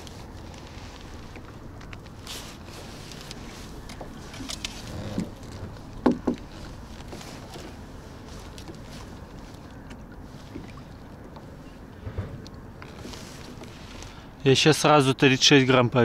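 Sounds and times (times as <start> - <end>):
wind and water rumble: 0.0 - 16.0
sharp knocks: 6.0 - 6.4, 12.0 - 12.6.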